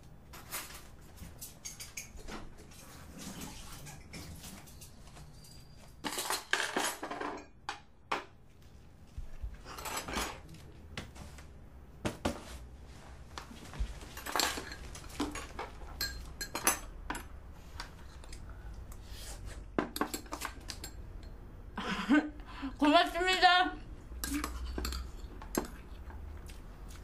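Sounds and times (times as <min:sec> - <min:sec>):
dishes and cutlery clattering: 0:00.4 - 0:07.8, 0:09.6 - 0:10.5, 0:13.8 - 0:17.4, 0:19.8 - 0:21.4, 0:24.2 - 0:25.9.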